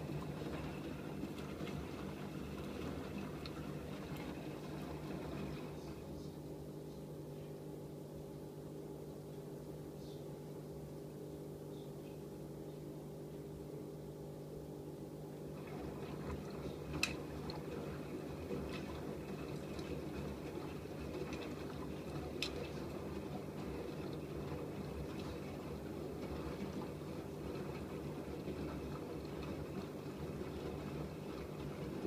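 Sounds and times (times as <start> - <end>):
water sloshing in washing machine: 0.0 - 6.7, 15.2 - 32.0
washing machine motor humming: 0.0 - 32.0.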